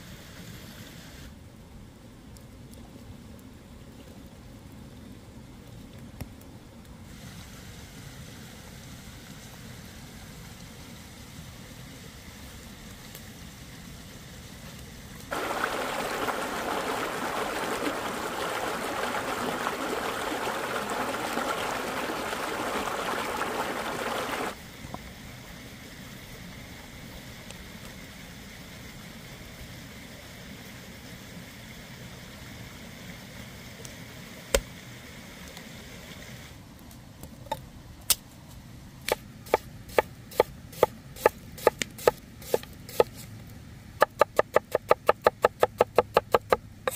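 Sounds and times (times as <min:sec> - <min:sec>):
stream water rushing: 0:15.3 - 0:25.7
knife slicing onion on board: 0:39.1 - 0:43.2, 0:44.0 - 0:46.9.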